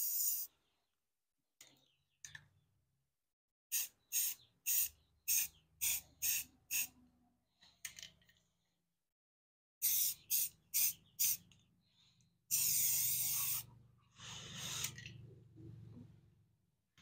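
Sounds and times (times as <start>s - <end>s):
spray can hissing bursts: 0.0s - 0.5s, 3.7s - 6.9s, 9.8s - 11.4s, 12.5s - 13.7s.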